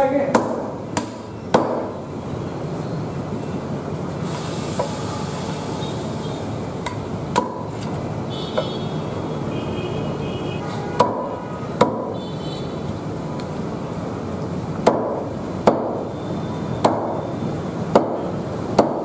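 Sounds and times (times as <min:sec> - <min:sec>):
steady background noise: 0:00.0 - 0:19.0
cleaver chopping on wooden block: 0:00.3 - 0:01.9, 0:06.8 - 0:07.7, 0:11.0 - 0:12.1, 0:14.8 - 0:16.0, 0:16.8 - 0:17.2, 0:17.9 - 0:19.0.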